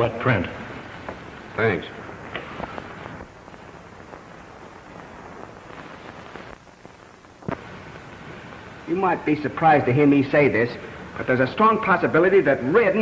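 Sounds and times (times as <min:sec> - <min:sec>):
film soundtrack hiss and crackle: 0:00.0 - 0:13.0
faint clicks: 0:05.8 - 0:07.7.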